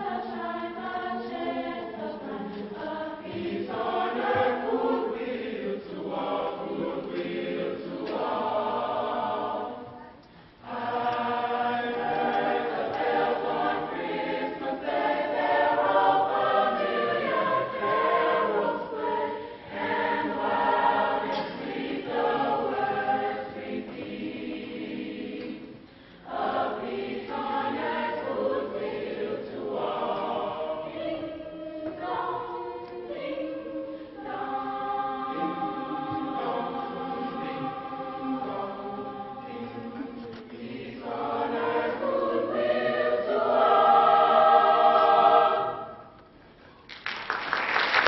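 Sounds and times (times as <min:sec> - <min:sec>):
choir singing: 0:00.0 - 0:46.3
audience applause: 0:46.9 - 0:48.0.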